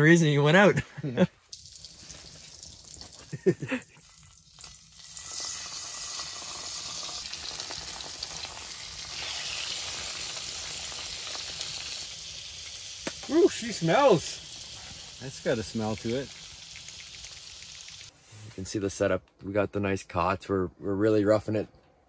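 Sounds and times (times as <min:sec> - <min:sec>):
fish frying in oil: 0:01.5 - 0:18.1.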